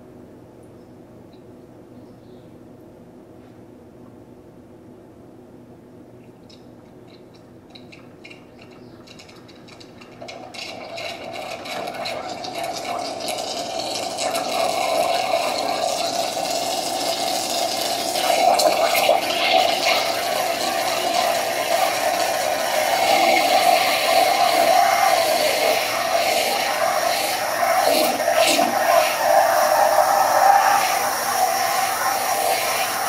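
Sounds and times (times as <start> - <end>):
steam wand frothing milk: 7.8 - 33.0.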